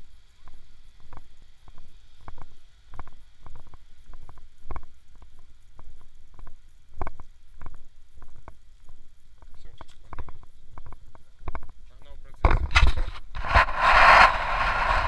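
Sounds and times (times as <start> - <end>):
wind rumble on microphone: 12.4 - 15.0.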